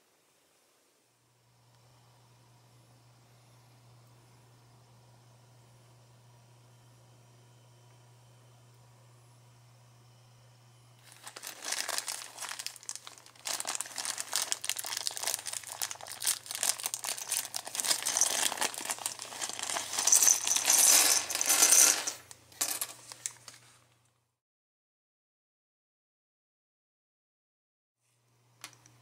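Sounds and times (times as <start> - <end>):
plastic bag crinkling: 11.0 - 22.3
plastic bricks clattering on wood: 11.1 - 22.9.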